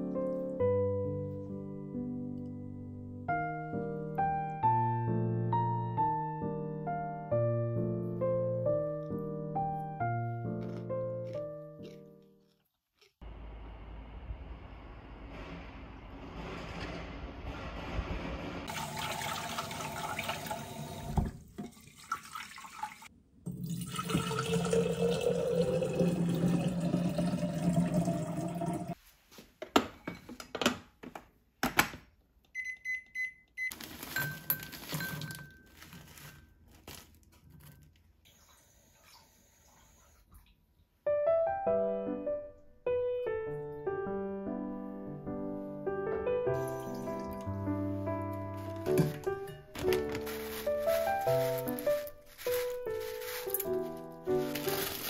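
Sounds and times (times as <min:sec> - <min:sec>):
background music: 0:00.0 - 0:12.2, 0:41.1 - 0:55.0
tap water filling a pot: 0:18.7 - 0:29.0.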